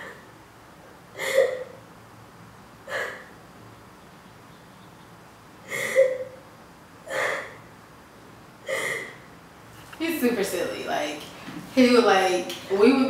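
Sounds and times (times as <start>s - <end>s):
woman sobbing: 1.2s - 1.7s, 8.6s - 9.2s.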